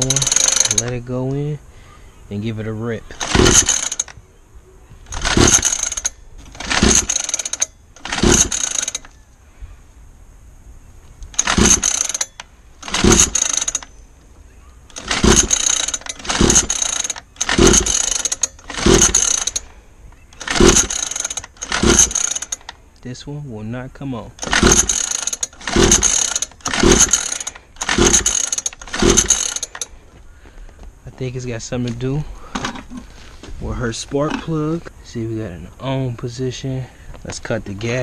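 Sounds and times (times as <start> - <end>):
pull starter cord whirring: 0.0 - 1.0, 3.1 - 4.2, 5.0 - 9.2, 11.2 - 13.9, 14.9 - 19.7, 20.3 - 22.8, 24.4 - 29.9.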